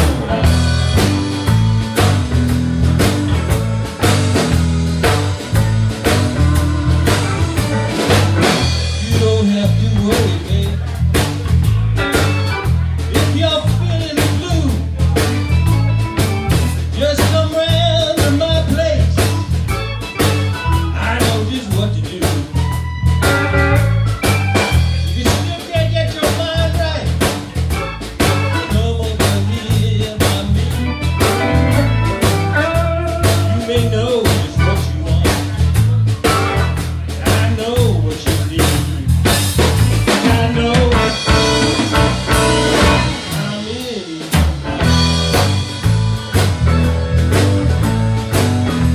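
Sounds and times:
live band playing: 0:00.0 - 0:48.9.

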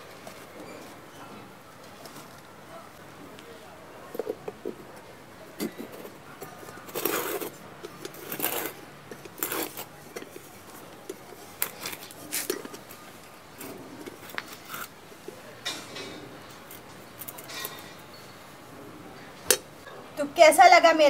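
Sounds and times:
gritty metal scraping: 0:05.6 - 0:18.4.

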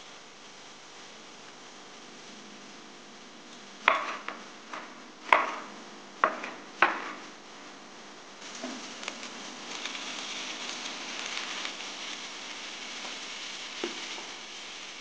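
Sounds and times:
knife chopping on cutting board: 0:03.8 - 0:07.2.

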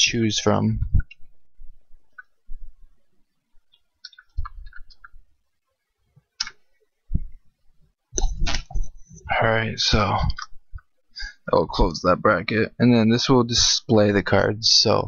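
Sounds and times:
low thumps: 0:07.1 - 0:07.4.

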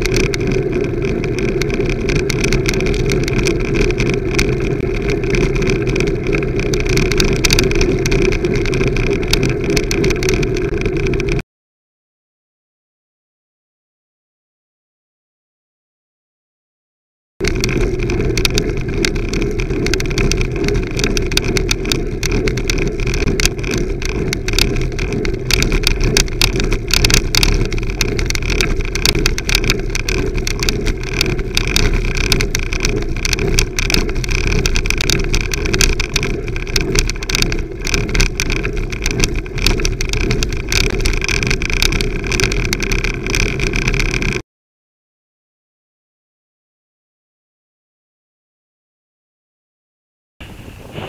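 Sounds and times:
small knocks and clicks: 0:00.0 - 0:11.4, 0:17.4 - 0:44.4
tyre and road noise: 0:00.0 - 0:11.4, 0:17.4 - 0:44.4, 0:50.4 - 0:51.0
wind rushing over microphone: 0:00.0 - 0:11.4, 0:17.4 - 0:44.4, 0:50.4 - 0:51.0.

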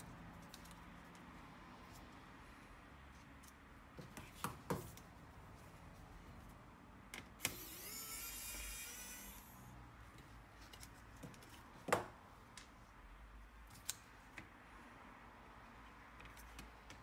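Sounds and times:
electric screwdriver whine: 0:07.4 - 0:09.6.

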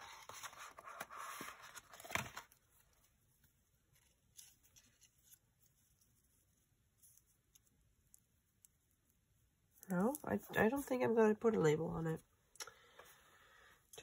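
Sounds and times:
paper and plastic case rustling: 0:00.0 - 0:03.1.

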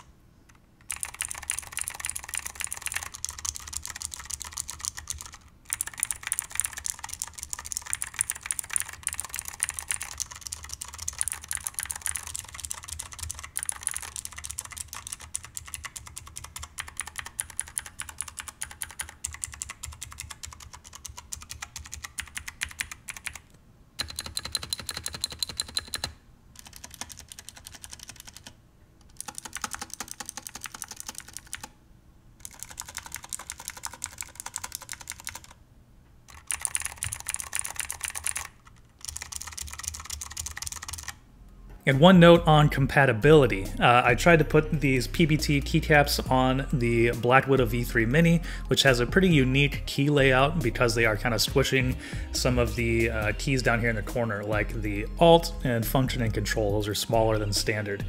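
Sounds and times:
fast typing on clicky keyboard: 0:00.8 - 0:31.8, 0:32.4 - 0:35.6, 0:36.3 - 0:41.2.

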